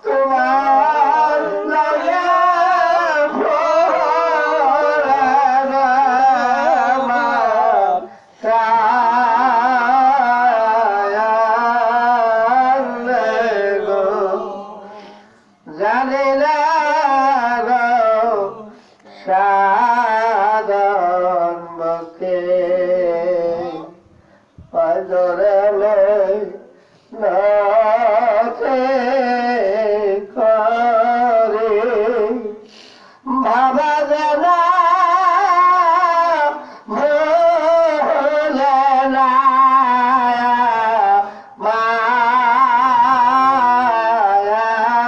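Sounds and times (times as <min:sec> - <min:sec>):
man singing: 0:00.0 - 0:24.0, 0:24.6 - 0:45.0.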